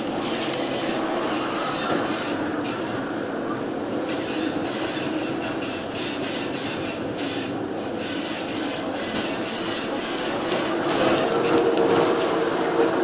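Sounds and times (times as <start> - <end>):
storm wind: 0.0 - 13.0.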